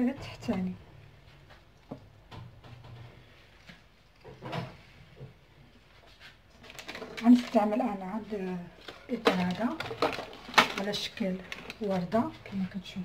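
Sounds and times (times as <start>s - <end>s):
kitchen things knocking: 9.1s - 12.2s.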